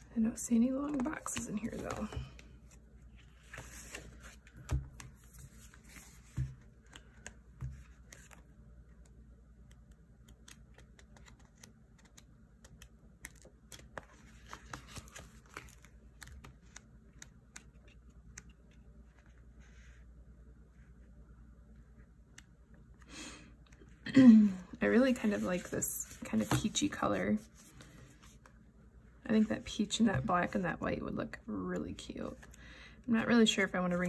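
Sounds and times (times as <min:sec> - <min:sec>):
sticker sheets rustling: 0:00.7 - 0:08.4
pages turning: 0:00.9 - 0:08.5, 0:10.2 - 0:19.4.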